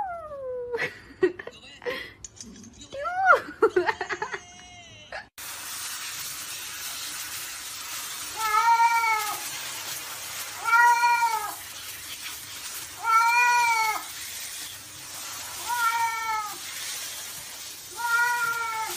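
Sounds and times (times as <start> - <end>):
shower head spraying water: 5.4 - 18.9
cat meowing: 8.4 - 9.4, 10.6 - 11.6, 13.0 - 14.1, 15.6 - 16.7, 17.9 - 18.9.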